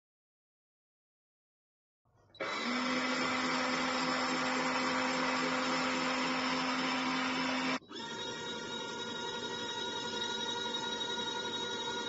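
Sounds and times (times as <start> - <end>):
washing machine motor whirring: 2.4 - 12.0.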